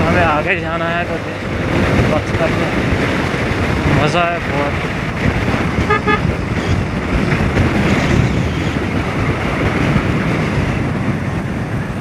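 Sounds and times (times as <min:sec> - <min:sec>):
road noise: 0:00.0 - 0:12.0
wind buffeting microphone: 0:00.0 - 0:12.0
motorcycle engine: 0:04.9 - 0:08.3.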